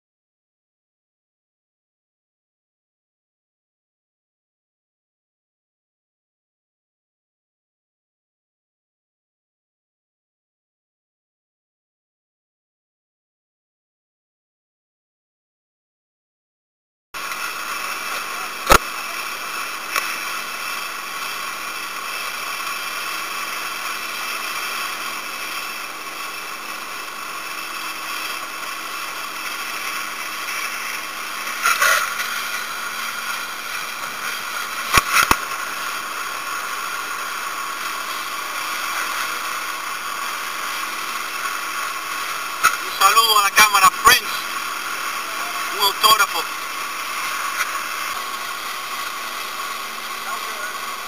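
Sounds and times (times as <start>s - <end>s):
faint motor drone: 17.2s - 51.0s
wind and spray hiss: 17.2s - 51.0s.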